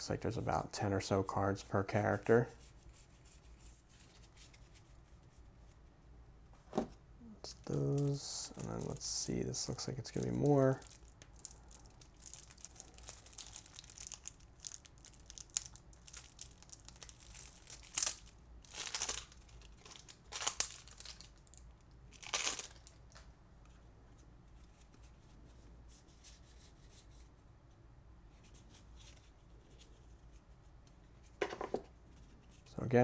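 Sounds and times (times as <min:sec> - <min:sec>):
cards rustling: 0:07.5 - 0:21.4
plastic wrap ripping: 0:07.8 - 0:23.2.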